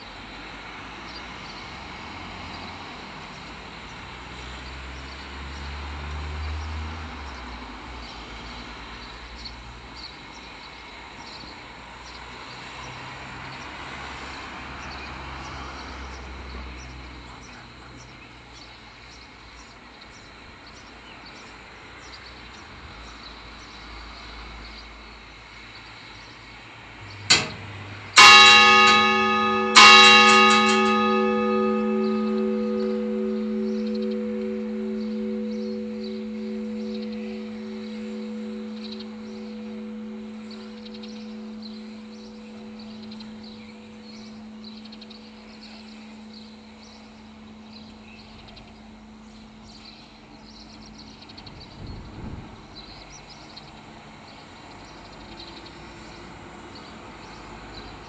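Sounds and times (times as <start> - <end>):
church bell tolling: 27.0 - 53.6.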